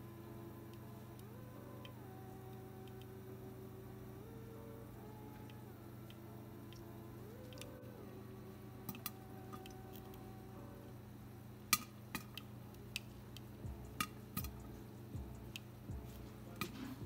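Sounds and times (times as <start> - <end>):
popcorn popping: 8.8 - 10.2, 11.6 - 17.0.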